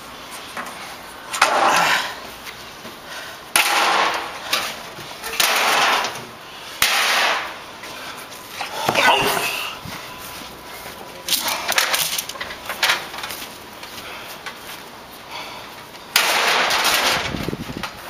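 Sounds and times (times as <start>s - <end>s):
boards thrown onto pile crashing: 3.6s - 7.6s, 16.1s - 17.4s.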